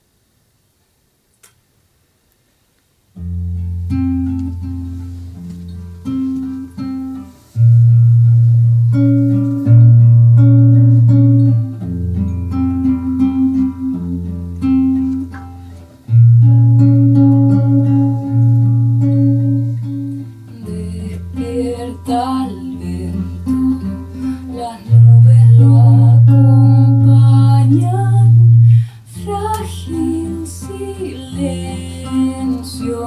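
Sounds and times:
acoustic guitars playing: 3.2 - 33.0
double bass low notes: 7.4 - 15.3, 16.0 - 28.9
woman singing: 20.5 - 33.0.

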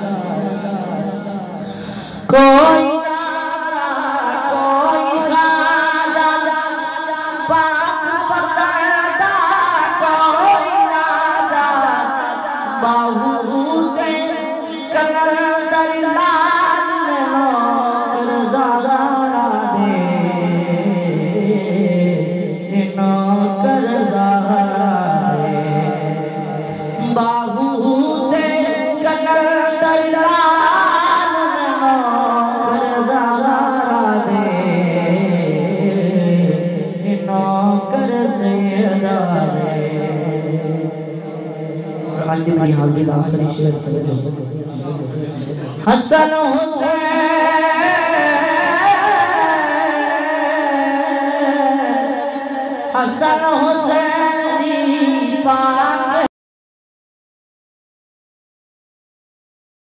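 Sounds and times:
man singing over a loudspeaker: 0.0 - 56.3.

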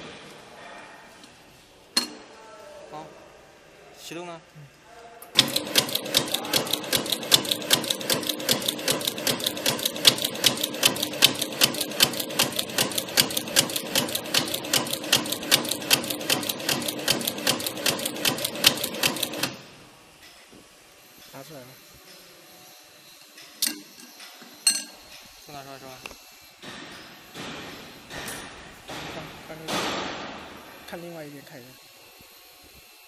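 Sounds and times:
steady mechanical hum: 0.0 - 33.0
machine clacking rapidly: 5.4 - 19.5.

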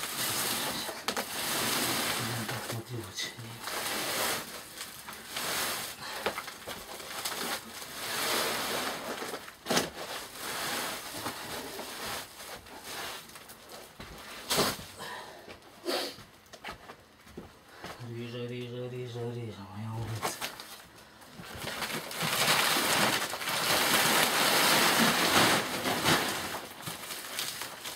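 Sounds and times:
sack cloth rustling and scraping: 0.0 - 2.8, 3.6 - 6.2, 6.8 - 14.9, 21.8 - 27.5.

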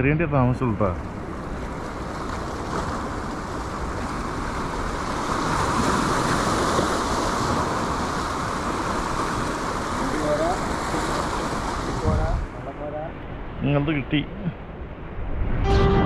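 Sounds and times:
sea waves breaking on rocks: 0.8 - 12.6.

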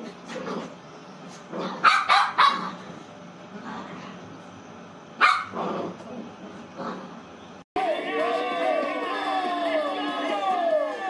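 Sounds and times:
dog barking: 1.8 - 2.8, 5.2 - 5.7.

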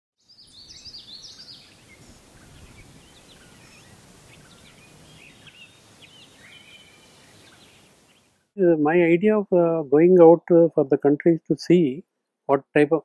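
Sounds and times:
birds chirping: 0.2 - 8.4.

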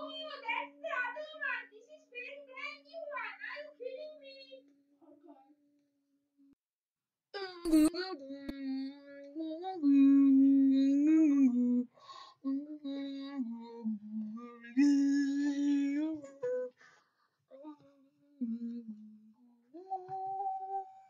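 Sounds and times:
person humming a slow tune: 4.6 - 5.8, 7.4 - 16.8, 17.5 - 21.0.

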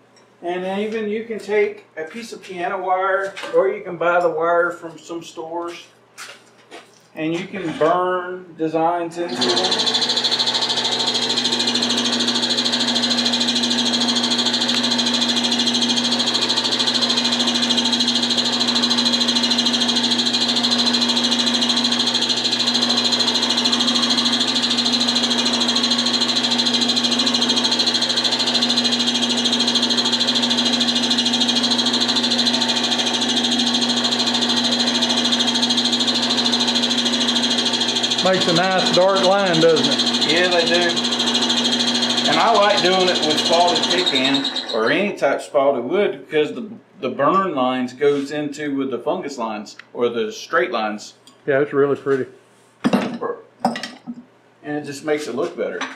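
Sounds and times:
wood lathe motor whining: 9.3 - 45.1.

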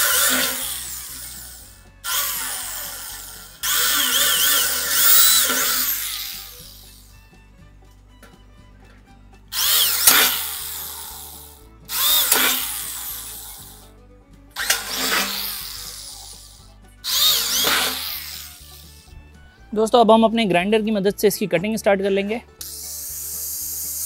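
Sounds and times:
electric drill boring through metal: 0.0 - 7.2, 9.5 - 13.9, 14.5 - 19.2, 22.6 - 24.0.

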